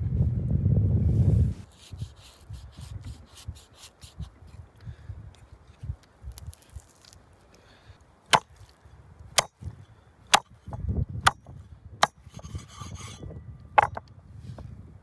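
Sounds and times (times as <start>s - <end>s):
rustle of handling meat: 5.4s - 8.9s.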